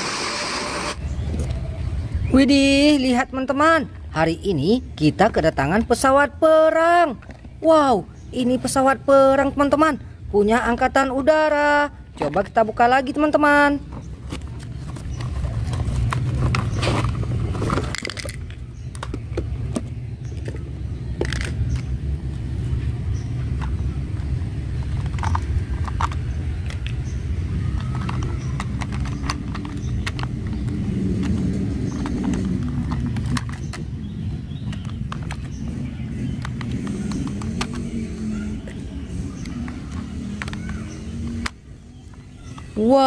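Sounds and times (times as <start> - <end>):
plastic parts clicking: 13.9 - 21.9, 24.6 - 34.0, 34.6 - 42.8.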